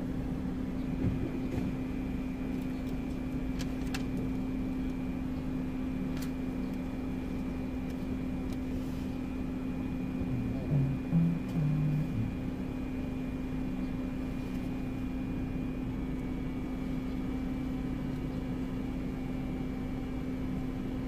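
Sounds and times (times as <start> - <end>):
motor hum: 6.6 - 19.0
faint high whine: 10.2 - 14.1.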